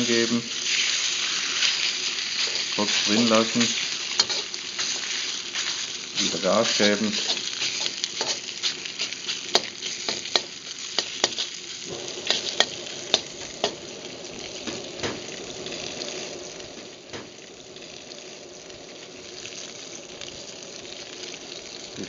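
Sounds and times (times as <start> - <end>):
chicken sizzling in a wok: 0.0 - 22.0
gas flame: 0.0 - 22.0
stirring clacks: 7.1 - 11.5.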